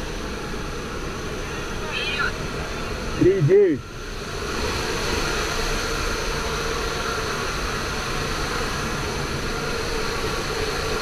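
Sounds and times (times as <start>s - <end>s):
aircraft engine hum: 0.0s - 11.0s.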